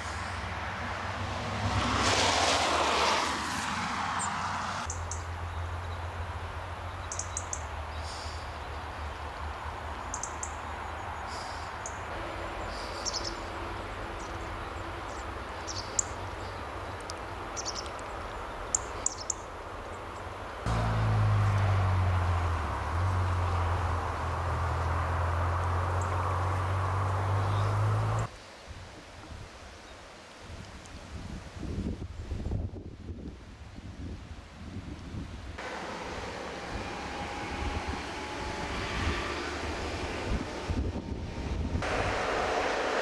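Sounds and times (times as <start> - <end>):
vehicle passing: 0.0 - 6.9, 20.7 - 28.3, 35.6 - 43.0
small birds chirping: 6.8 - 9.1, 9.9 - 20.6, 25.6 - 28.3
steady low rumble: 40.0 - 43.0.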